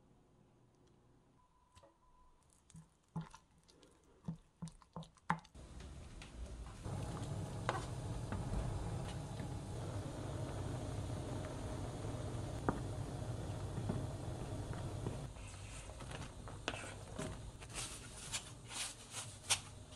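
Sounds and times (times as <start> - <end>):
water boiling in a pan: 6.6 - 18.2.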